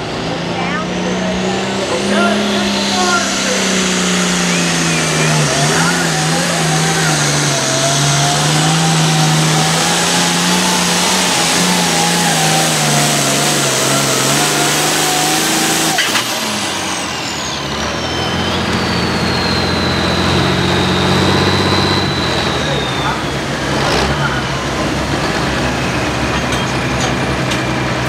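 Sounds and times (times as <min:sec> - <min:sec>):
wavering whine: 0:00.0 - 0:24.8
tractor diesel engine drone: 0:00.0 - 0:28.0
high whistle falling in pitch: 0:17.2 - 0:23.6.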